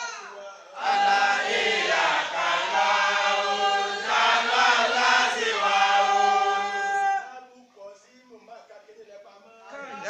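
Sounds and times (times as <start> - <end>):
congregation chanting in unison: 0.5 - 7.4.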